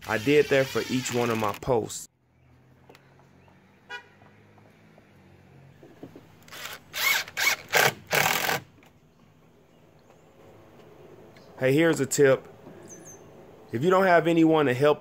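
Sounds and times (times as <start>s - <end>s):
cordless driver driving screws: 0.0s - 1.7s, 6.4s - 8.6s.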